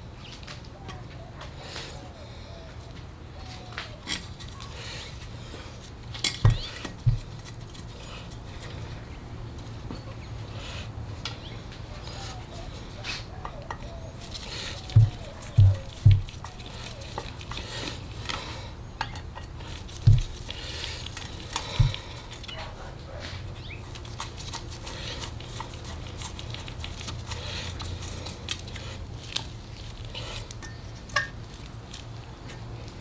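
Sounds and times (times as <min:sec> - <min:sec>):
dull thumps: 0:06.3 - 0:07.5, 0:14.8 - 0:16.6, 0:19.9 - 0:20.6, 0:21.6 - 0:22.2.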